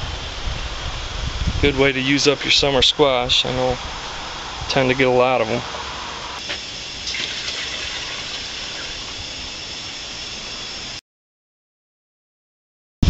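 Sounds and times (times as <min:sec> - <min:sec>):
gas burner hissing: 0:00.0 - 0:11.0.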